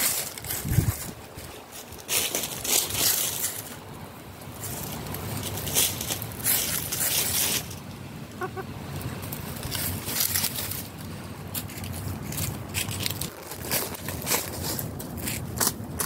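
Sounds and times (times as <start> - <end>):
gusty rustling noise: 0.0 - 16.0
hen clucking: 8.3 - 8.8.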